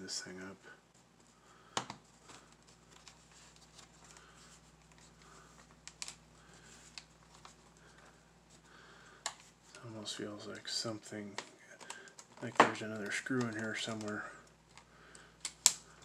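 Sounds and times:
small plastic clicks: 0:11.4 - 0:15.8.

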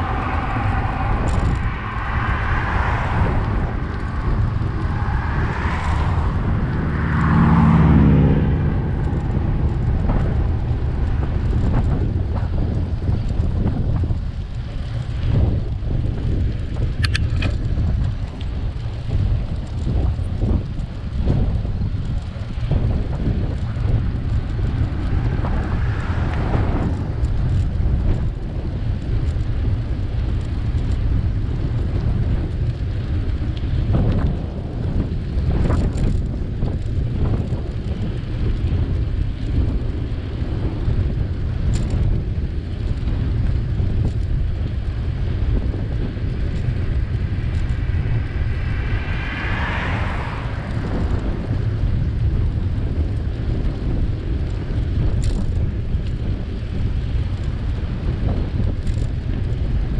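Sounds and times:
high squeal: 0:00.0 - 0:03.9
wind buffeting microphone: 0:00.0 - 0:59.9.

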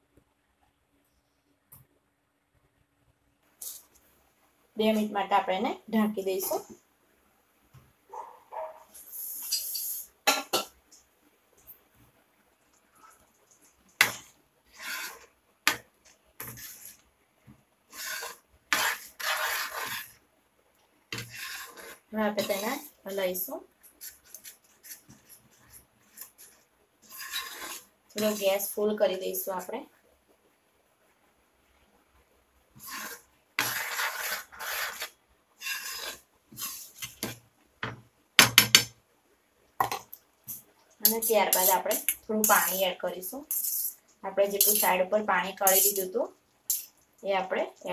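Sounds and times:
spoon stirring thick gravy: 0:12.7 - 0:20.2, 0:21.1 - 0:29.7, 0:32.7 - 0:38.0, 0:39.8 - 0:47.1
spatula scraping a frying pan: 0:13.0 - 0:15.8, 0:16.4 - 0:17.1, 0:17.9 - 0:20.2, 0:21.1 - 0:23.1, 0:23.9 - 0:28.7, 0:32.7 - 0:37.4, 0:39.8 - 0:46.1, 0:46.7 - 0:46.9.

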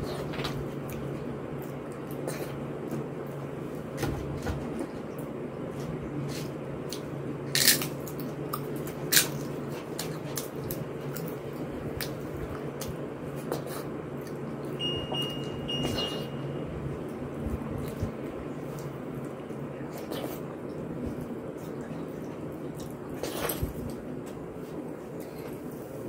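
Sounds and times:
steady low hum: 0:00.0 - 0:26.0
quiet chewing: 0:04.8 - 0:14.8, 0:17.7 - 0:26.0.

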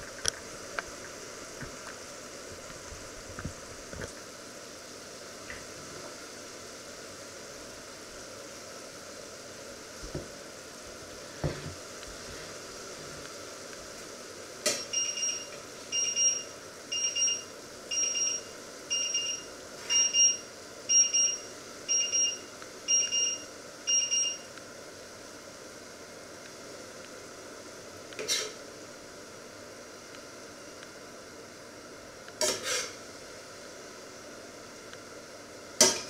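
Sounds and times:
kitchen timer beeping: 0:14.7 - 0:24.6.

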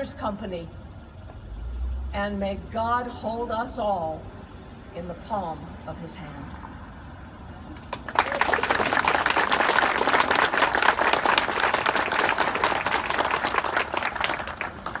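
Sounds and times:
audience applauding: 0:07.8 - 0:15.0.

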